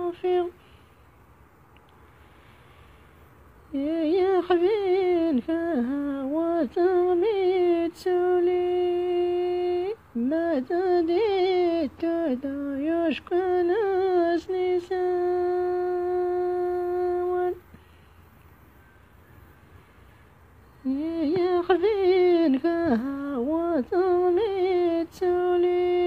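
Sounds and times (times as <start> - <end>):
woman singing ornamented melody: 0.0 - 0.8, 3.6 - 17.8, 20.6 - 26.0.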